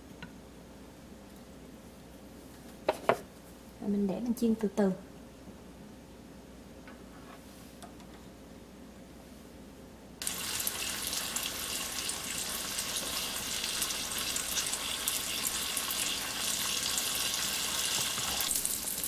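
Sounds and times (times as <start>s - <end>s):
tofu sizzling in oil: 10.2s - 19.0s.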